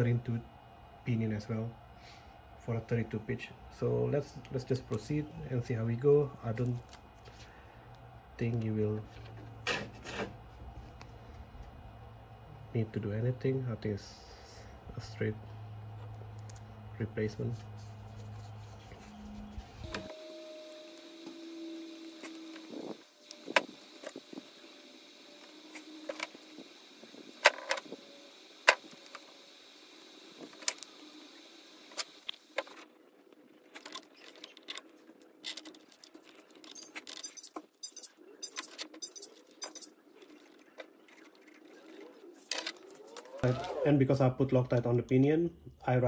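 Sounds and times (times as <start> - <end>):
small plastic parts clicking: 33.7 - 41.5.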